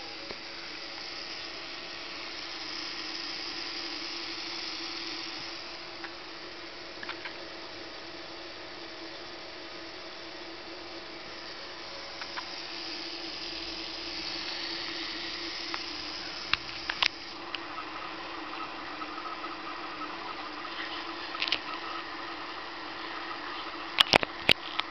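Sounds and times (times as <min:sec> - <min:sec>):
gear motors whirring: 0:00.0 - 0:24.9
high motor whine: 0:00.0 - 0:24.9
sharp clicks: 0:15.6 - 0:17.6.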